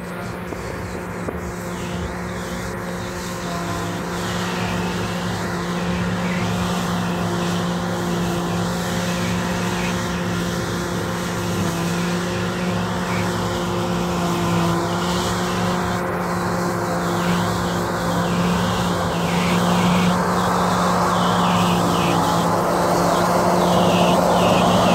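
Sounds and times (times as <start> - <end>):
combine harvester humming: 0.0 - 24.9.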